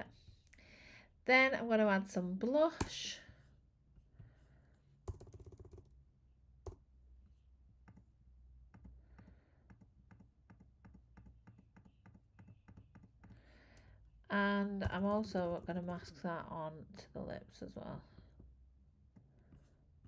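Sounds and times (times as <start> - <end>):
computer keyboard and mouse clicking: 5.1 - 5.9.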